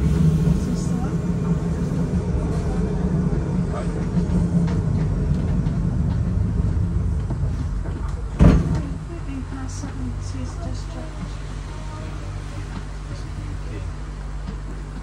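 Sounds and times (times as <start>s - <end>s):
tram wheels rumbling on rail: 0.0s - 15.0s
loud sharp thump: 8.4s - 8.9s.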